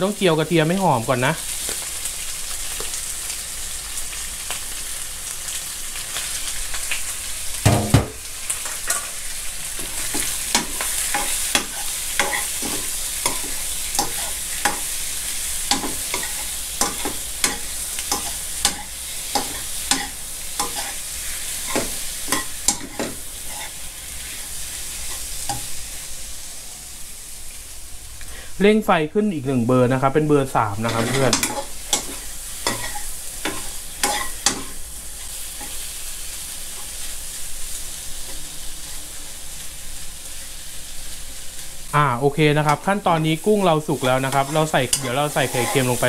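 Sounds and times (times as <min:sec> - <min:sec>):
shrimp sizzling in a wok: 0:00.0 - 0:46.0
loud knock: 0:07.7 - 0:08.2
metal ladle scraping a wok: 0:15.6 - 0:25.7, 0:30.8 - 0:35.8, 0:44.0 - 0:46.0.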